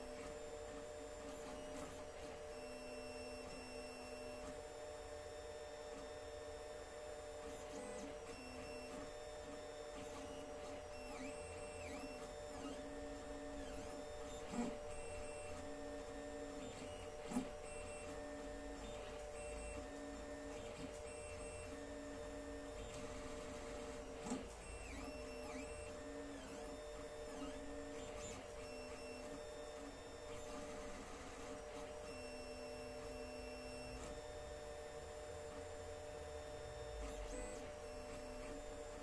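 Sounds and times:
stepper motors whining: 0:10.0 - 0:34.2.

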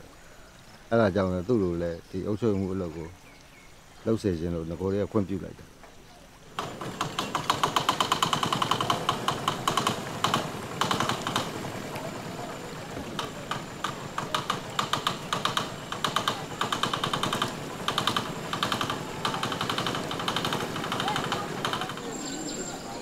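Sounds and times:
boat engine putt-putt: 0:06.5 - 0:22.9.

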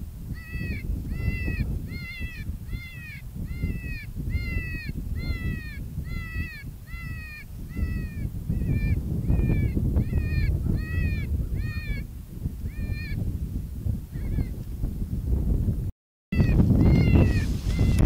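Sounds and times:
wind rumble on microphone: 0:00.0 - 0:18.0
predator call distress cries: 0:00.4 - 0:12.0, 0:16.4 - 0:18.0.

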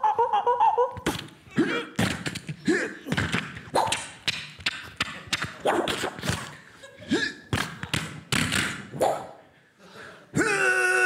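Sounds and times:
mouth-made thumps and clicks: 0:02.0 - 0:06.5, 0:07.5 - 0:08.8.

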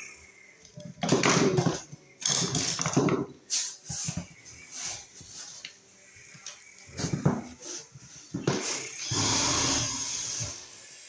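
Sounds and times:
tools rustling and knocking: 0:00.8 - 0:05.7, 0:06.9 - 0:09.0.

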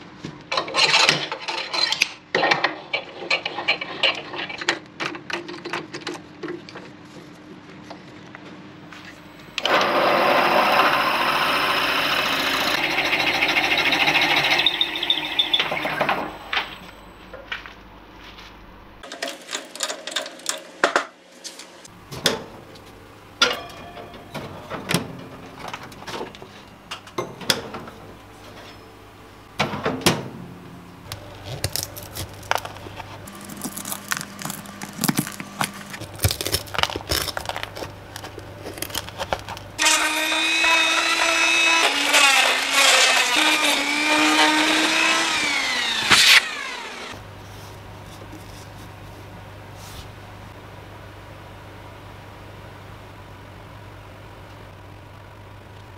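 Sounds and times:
small electric motor running: 0:09.9 - 0:16.5, 0:39.8 - 0:47.2.

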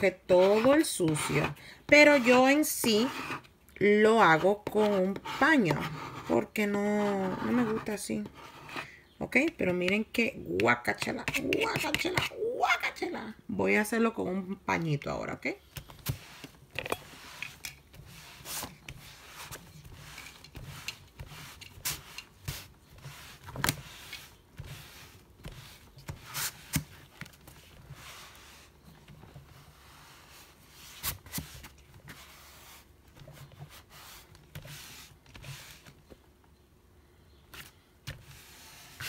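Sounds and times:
cloth wiping plastic mat: 0:16.0 - 0:36.0.

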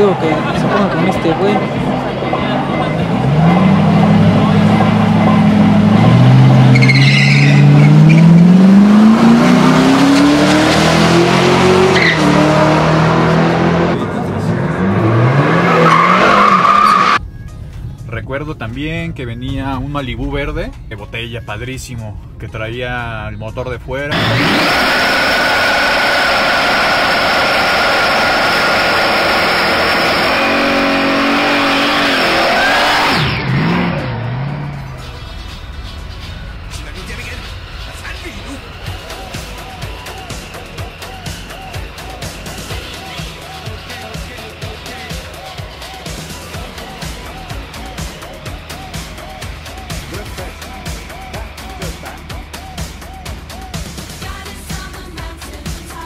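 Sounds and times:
race car engines accelerating: 0:00.0 - 0:17.2, 0:24.1 - 0:56.0
tyres squealing: 0:06.6 - 0:08.5, 0:14.8 - 0:17.2.

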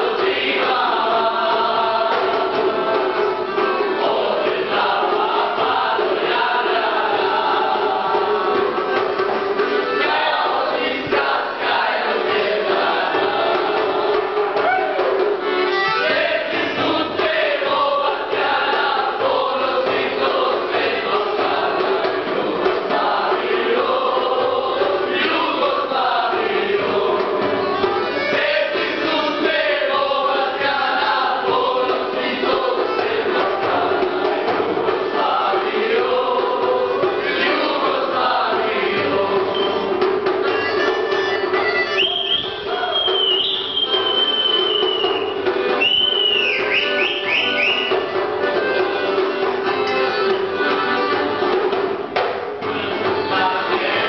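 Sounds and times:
men singing in chorus: 0:00.0 - 0:08.8, 0:10.0 - 0:14.8, 0:16.0 - 0:27.6, 0:28.2 - 0:40.0, 0:53.2 - 0:54.0.

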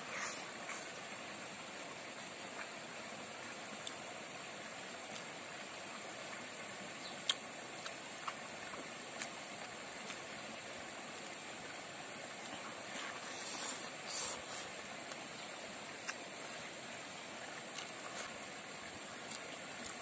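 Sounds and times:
steady background hiss: 0:00.0 - 0:20.0
mouth clicks: 0:07.2 - 0:08.4
biting and chewing: 0:07.2 - 0:10.2, 0:17.4 - 0:18.5, 0:19.1 - 0:20.0.

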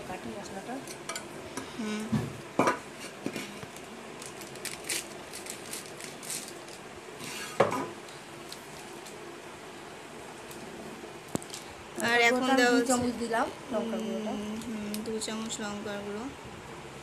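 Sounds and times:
spice packet crinkling: 0:03.7 - 0:06.9.

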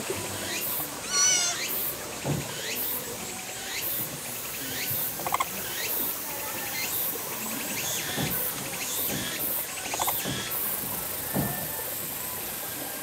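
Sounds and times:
animal wet eating sounds: 0:05.2 - 0:05.7
sharp clicks: 0:05.3 - 0:05.5.

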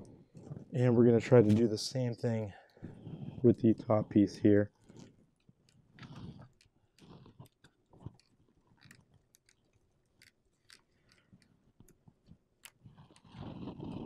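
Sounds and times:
small clicks of handling wires: 0:04.7 - 0:13.6.

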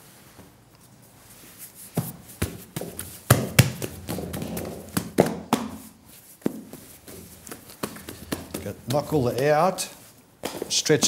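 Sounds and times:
soft rustling: 0:00.0 - 0:11.0
dough slapping on table: 0:02.0 - 0:09.6, 0:10.4 - 0:10.9.

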